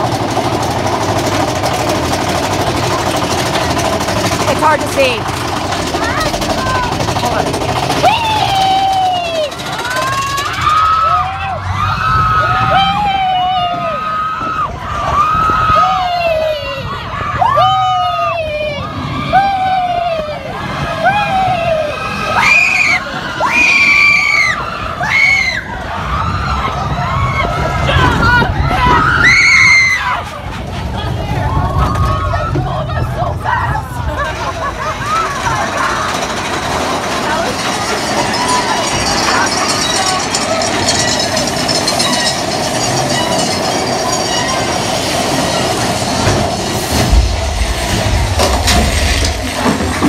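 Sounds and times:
coaster train rumbling: 0:00.0 - 0:50.0
riders screaming: 0:05.8 - 0:30.4.

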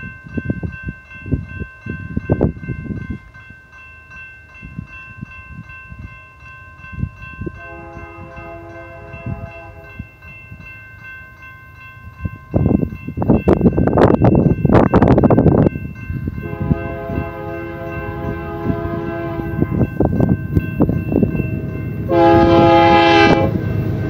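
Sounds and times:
wind on microphone: 0:00.0 - 0:03.6, 0:04.5 - 0:10.8, 0:12.0 - 0:24.0
distant locomotive air horn: 0:07.6 - 0:09.9, 0:16.4 - 0:19.8, 0:22.1 - 0:23.6.

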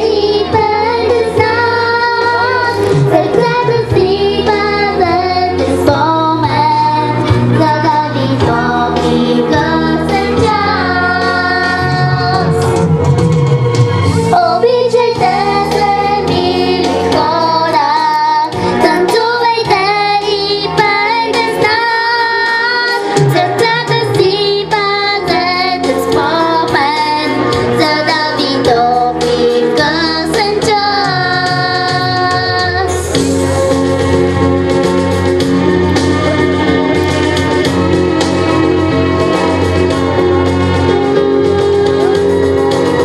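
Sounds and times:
girl singing into a microphone: 0:00.0 - 0:12.6, 0:14.3 - 0:33.1
instrumental backing track: 0:00.0 - 0:43.0.

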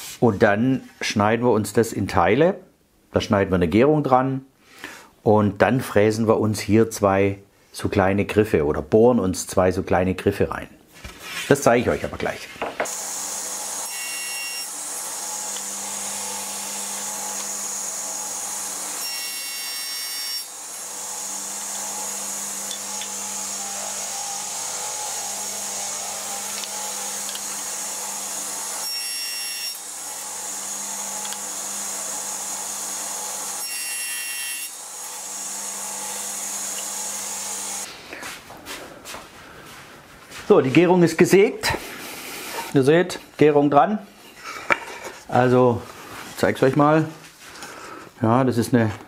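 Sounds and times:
saw blade cutting wood: 0:12.8 - 0:37.9
table saw running: 0:12.8 - 0:37.9.

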